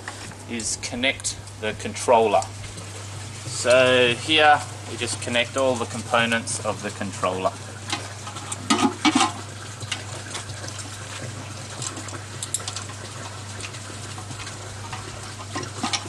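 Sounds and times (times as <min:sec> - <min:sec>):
steady hiss: 0:00.0 - 0:07.6.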